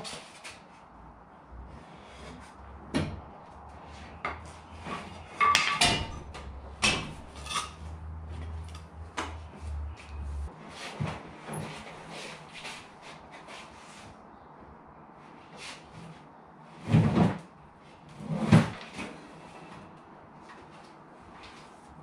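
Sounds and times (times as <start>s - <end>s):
low steady hum: 0.9s - 10.5s.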